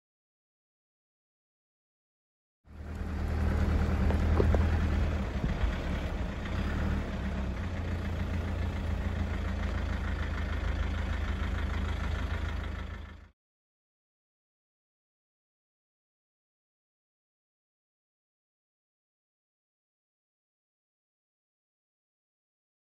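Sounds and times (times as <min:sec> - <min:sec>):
vehicle engine running: 0:02.7 - 0:13.4.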